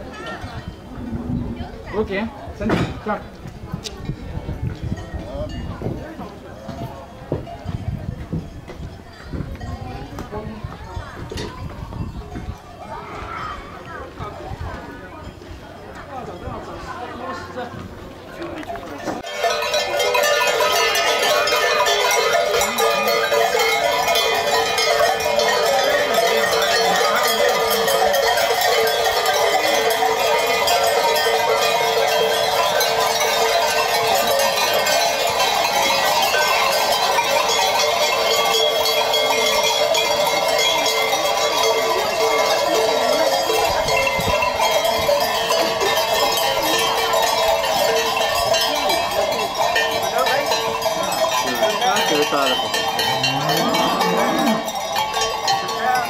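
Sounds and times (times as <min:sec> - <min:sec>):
cowbells clanging: 0:18.4 - 0:56.0.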